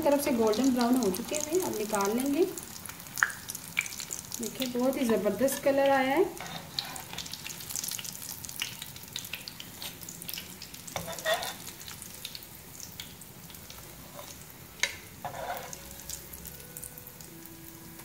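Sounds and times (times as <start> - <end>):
cutlets sizzling in hot oil: 0.0 - 18.0
tongs scraping pan: 5.0 - 7.3, 11.0 - 11.7, 14.0 - 16.0.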